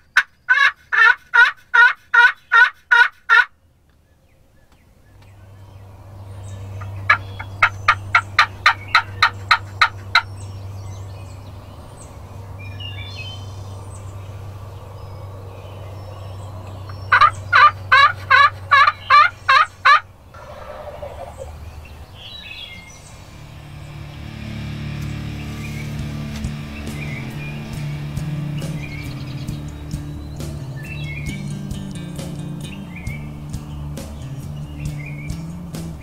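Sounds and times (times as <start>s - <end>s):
turkey yelping: 0.2s - 3.5s, 6.8s - 10.3s, 16.9s - 22.0s.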